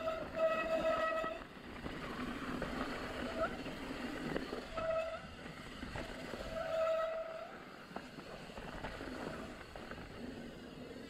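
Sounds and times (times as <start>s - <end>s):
disc brakes squealing: 0.0s - 1.4s.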